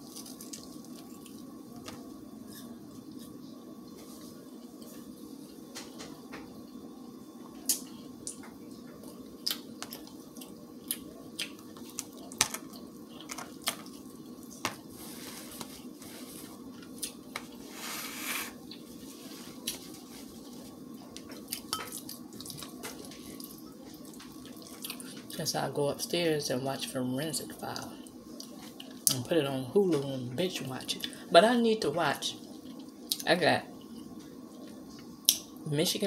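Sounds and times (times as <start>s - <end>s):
faint steady hum: 0.0s - 36.0s
person chewing: 9.4s - 14.5s.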